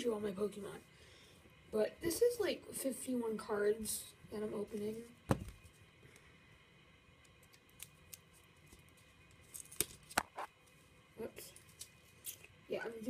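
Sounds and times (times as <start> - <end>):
foil pack clicks and crinkles: 7.3 - 10.4.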